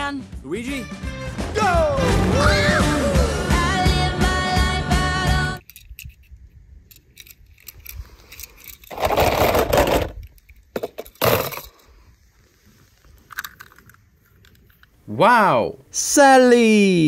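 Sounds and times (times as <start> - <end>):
toy cars clicking on stone: 5.6 - 11.8
toy cars scraping on stone: 7.9 - 10.2.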